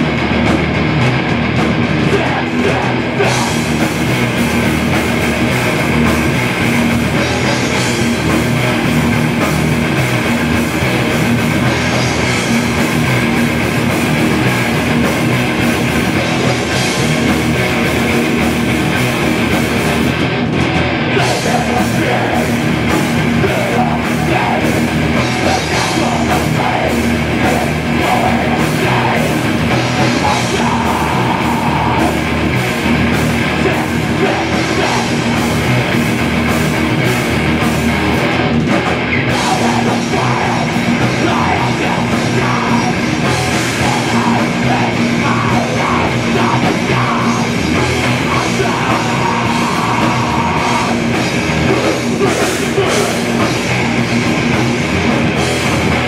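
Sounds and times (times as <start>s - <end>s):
distorted electric guitars: 0.0s - 56.0s
fast drum kit with cymbals: 0.0s - 56.0s.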